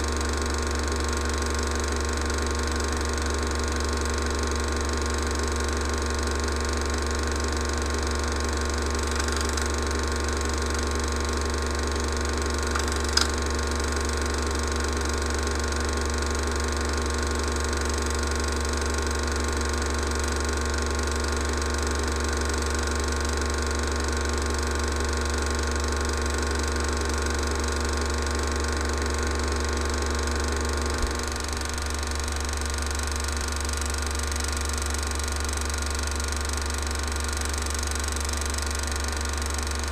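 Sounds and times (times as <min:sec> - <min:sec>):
film projector whirring: 0:00.0 - 0:39.9
sharp click: 0:09.0 - 0:09.8, 0:12.7 - 0:13.5.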